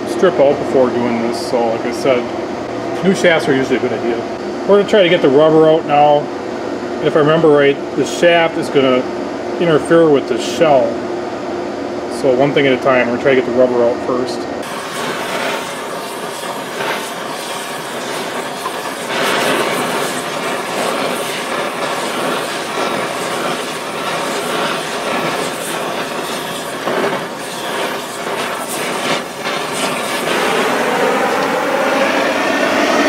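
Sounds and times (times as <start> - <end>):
torch flame hissing: 14.6 - 32.6
burning rubber crackling and popping: 14.7 - 30.4.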